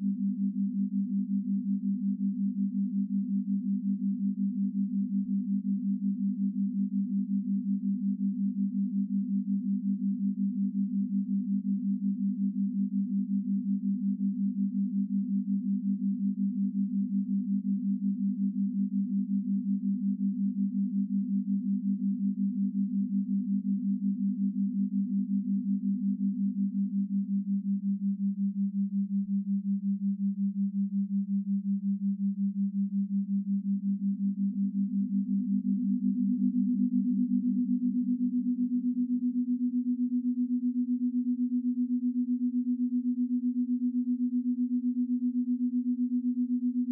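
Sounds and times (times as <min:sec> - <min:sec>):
pulsing electronic sine tone: 0:19.8 - 0:46.9.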